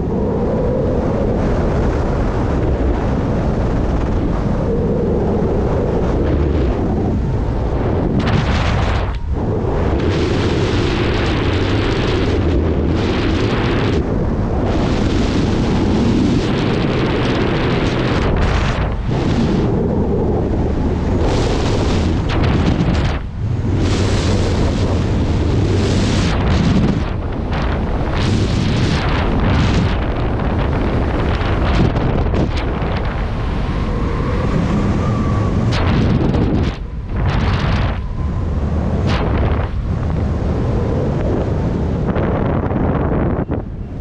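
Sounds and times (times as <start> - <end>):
wind buffeting microphone: 0.0 - 44.0.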